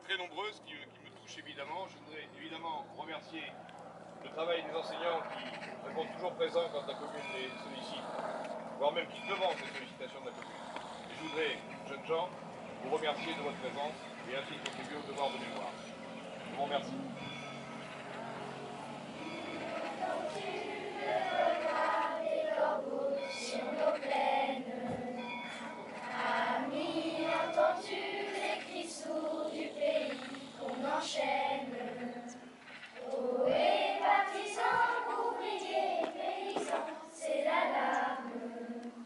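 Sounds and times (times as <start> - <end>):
children's choir singing: 12.8 - 39.0.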